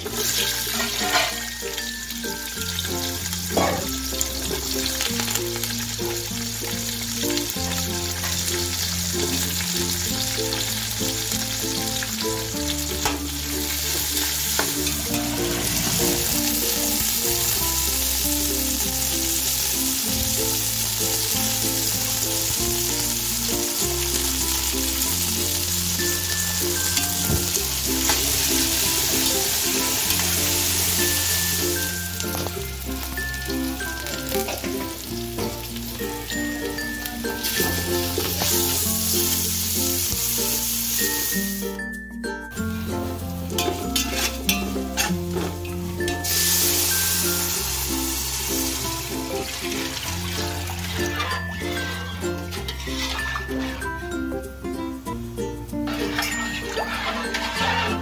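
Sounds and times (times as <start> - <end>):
onions sizzling in hot oil: 0.0 - 41.9, 42.5 - 58.0
background music: 0.0 - 58.0
mixture being stirred: 55.9 - 58.0.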